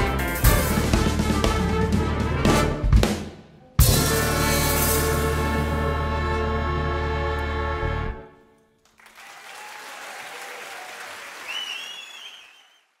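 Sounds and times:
audience applause: 8.8 - 13.0
whistle from crowd: 11.4 - 13.0.

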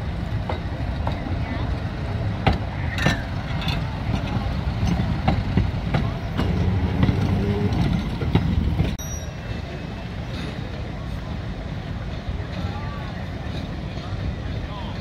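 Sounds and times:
streetcar rumble: 0.0 - 15.0
wheels clicking on track: 0.0 - 15.0.

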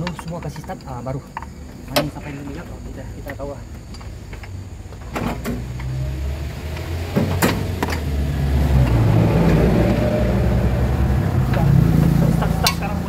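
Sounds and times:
diesel truck engine starting: 0.4 - 13.0.

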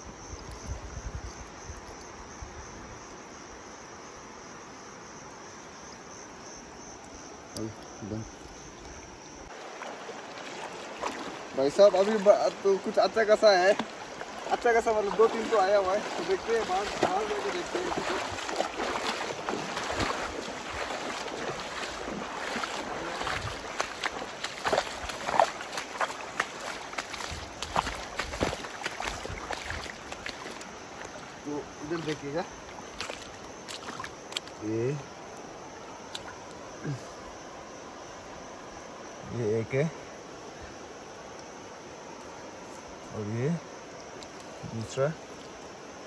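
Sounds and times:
crickets chirring: 0.0 - 46.0
river water rushing: 9.0 - 34.6.

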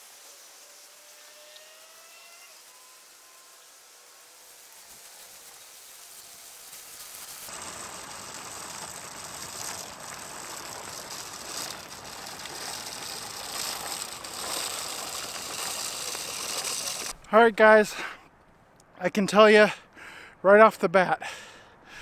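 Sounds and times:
salt spreader rattling grind: 4.4 - 17.2.

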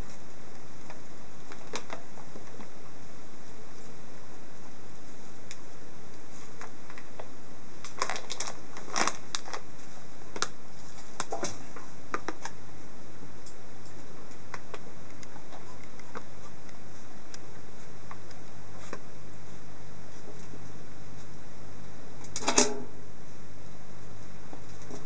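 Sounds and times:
crinkling plastic and foil bags: 1.5 - 2.6, 6.4 - 12.5.

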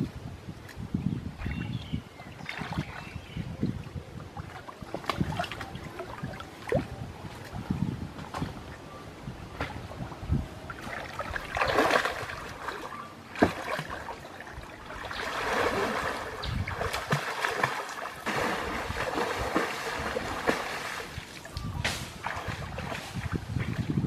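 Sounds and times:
water splashing and sloshing: 0.6 - 3.2, 3.8 - 24.0
slaps on water: 13.4 - 14.0, 21.3 - 23.3.

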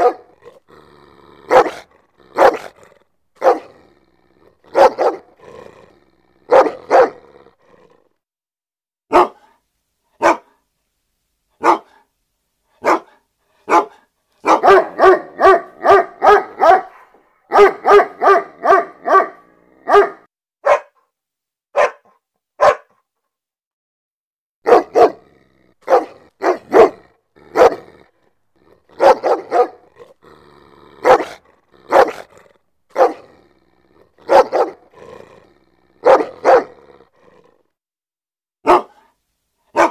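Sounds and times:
angry dog barking: 0.0 - 0.7, 1.3 - 7.4, 9.1 - 9.6, 10.2 - 10.6, 11.6 - 12.1, 12.8 - 21.0, 21.7 - 23.0, 24.6 - 30.2, 30.8 - 37.5, 38.6 - 39.9.

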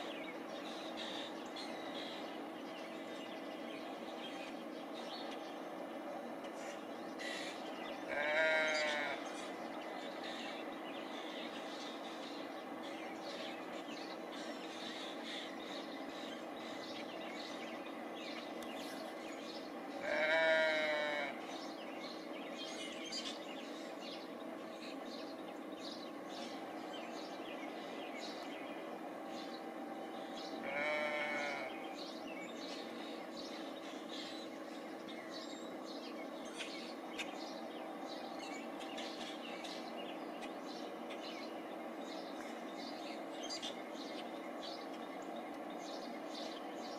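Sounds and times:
small birds chirping: 0.0 - 46.9
steady low hum: 0.0 - 46.9
loud drawn-out bird call: 7.2 - 9.4, 20.0 - 21.5, 30.5 - 32.0.

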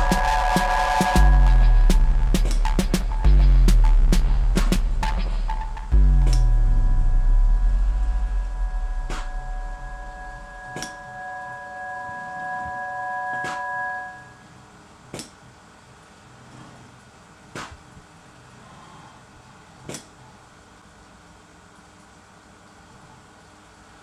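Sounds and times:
background music: 0.0 - 14.4
faint machine hum: 0.0 - 24.0.

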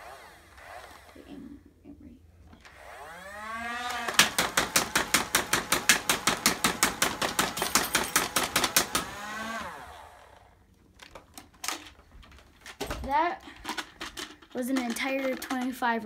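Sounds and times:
motors whining down: 0.0 - 1.5, 2.6 - 4.6, 8.2 - 10.6
toy dart blaster firing: 3.6 - 9.8.

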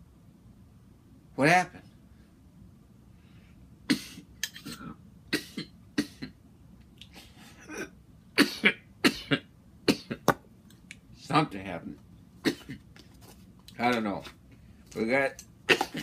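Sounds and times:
man coughing: 7.6 - 10.2, 12.4 - 12.9, 15.7 - 16.0.

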